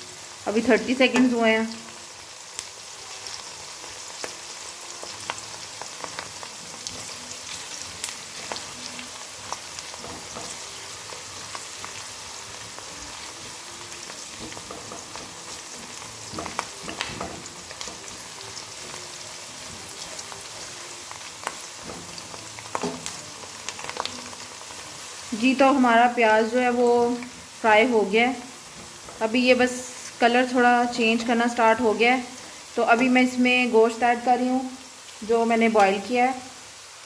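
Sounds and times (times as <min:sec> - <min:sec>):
onions sizzling in hot oil: 0:00.0 - 0:37.0
spatula scraping a pan: 0:06.9 - 0:25.3.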